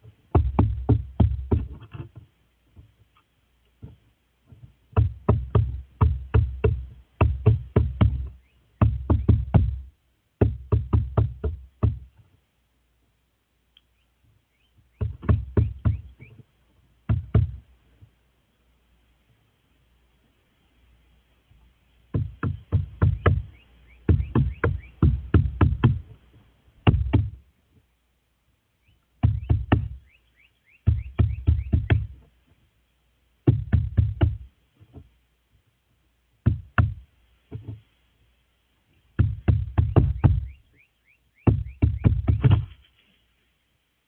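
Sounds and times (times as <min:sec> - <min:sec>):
crow beak knocking on wood: 0:00.3 - 0:02.0, 0:04.9 - 0:12.2, 0:15.0 - 0:16.4, 0:17.1 - 0:17.6, 0:22.1 - 0:26.1, 0:26.8 - 0:27.4, 0:29.2 - 0:30.1, 0:30.8 - 0:32.3, 0:33.4 - 0:35.0, 0:36.5 - 0:37.8, 0:39.2 - 0:40.6, 0:41.5 - 0:42.8.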